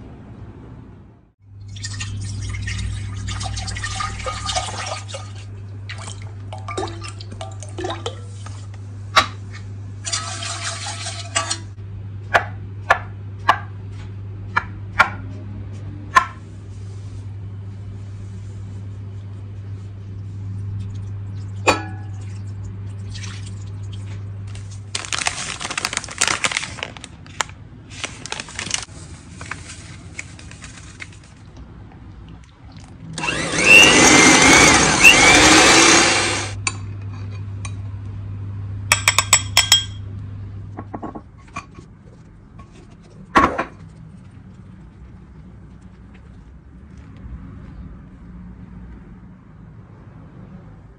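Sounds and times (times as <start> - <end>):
steady low hum: 0.0 - 25.0
electric mixer whipping cream: 33.2 - 36.6
utensils clinking and tapping: 38.9 - 40.0.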